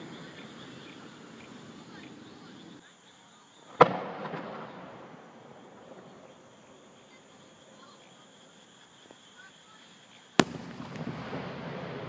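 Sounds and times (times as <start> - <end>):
insects chirring: 0.0 - 12.0
firework bang echoing: 3.8 - 5.0, 10.4 - 12.0.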